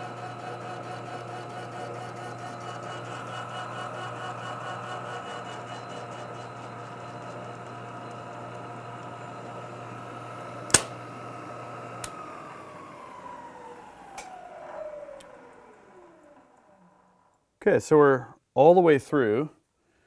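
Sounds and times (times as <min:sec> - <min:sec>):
milling machine motor hum: 0:00.0 - 0:17.4
spindle whine coasting down: 0:00.2 - 0:17.5
sharp click: 0:10.7 - 0:11.0.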